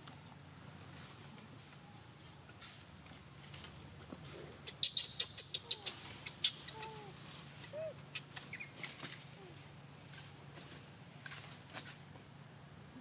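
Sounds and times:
high sharp animal chirps: 4.7s - 9.5s
short squeaky calls: 4.7s - 9.7s.

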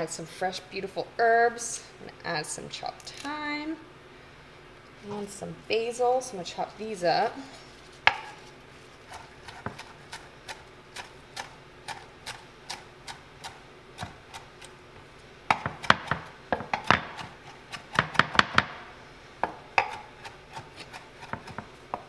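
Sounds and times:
knife chopping on wooden board: 8.1s - 8.4s, 9.1s - 12.4s, 15.5s - 18.8s, 19.4s - 22.0s.

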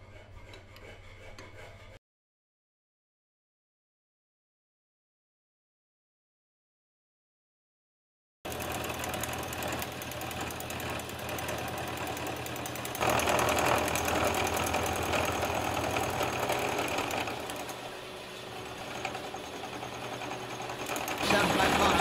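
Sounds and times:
lathe running: 8.5s - 22.0s
milling machine cutting metal: 8.5s - 22.0s.

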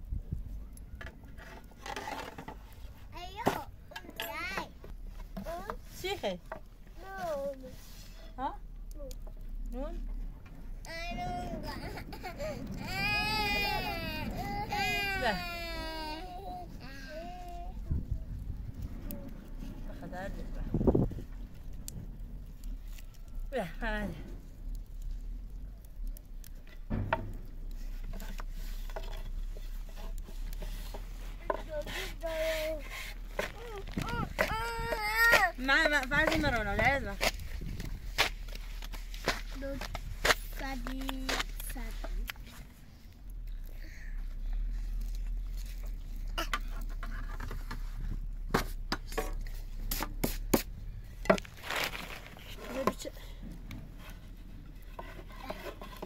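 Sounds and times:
utensil scraping: 1.3s - 4.3s, 25.0s - 43.0s, 44.8s - 56.0s
light knocks and clicks: 26.4s - 31.7s
rubbing: 26.8s - 42.8s, 53.8s - 56.0s.

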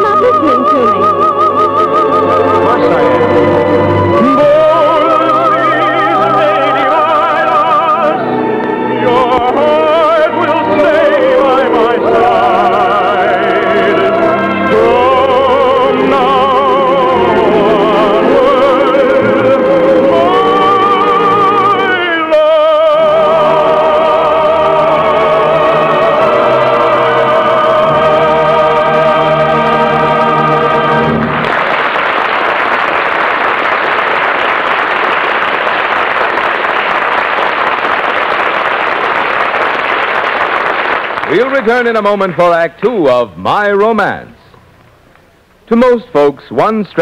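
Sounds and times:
operatic singing: 0.0s - 31.6s
orchestra: 0.0s - 44.5s.

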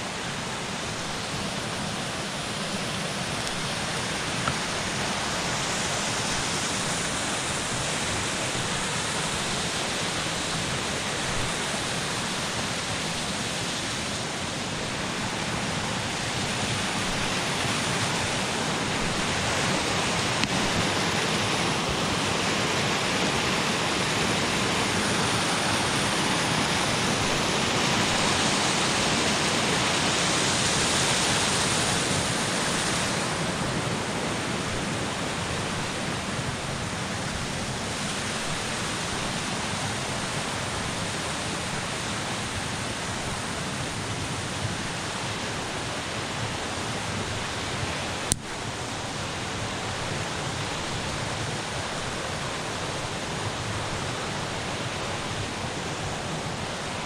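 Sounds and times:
creek rushing over small falls: 0.0s - 57.0s.

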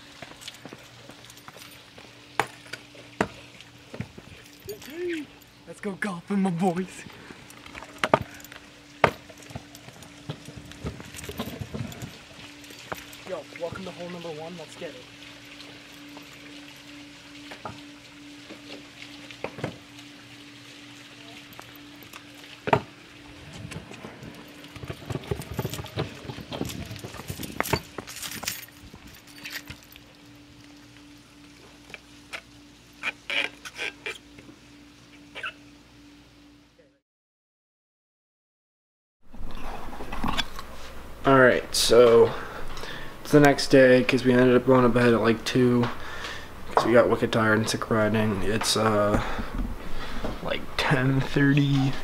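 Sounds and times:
scooter rolling over paving: 23.5s - 28.1s.

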